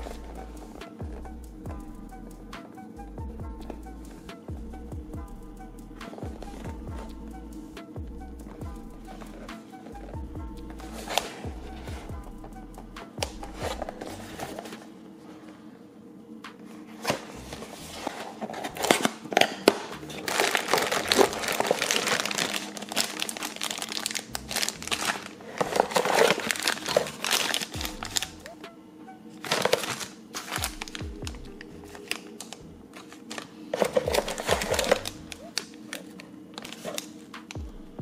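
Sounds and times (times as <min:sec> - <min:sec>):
background music: 0:00.0 - 0:38.0
plastic bags crinkling: 0:17.7 - 0:28.6, 0:29.4 - 0:37.6.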